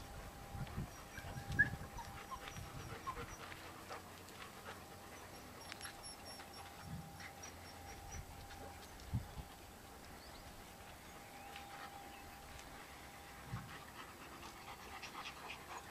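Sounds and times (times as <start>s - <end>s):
puppies squeaking: 5.2s - 8.9s.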